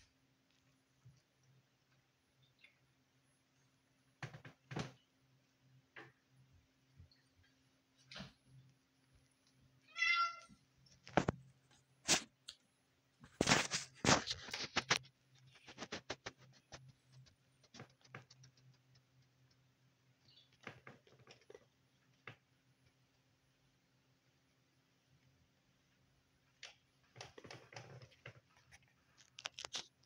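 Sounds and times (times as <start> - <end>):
sharp knocks and clicks: 4.2 - 5.0
cat meowing: 9.8 - 10.6.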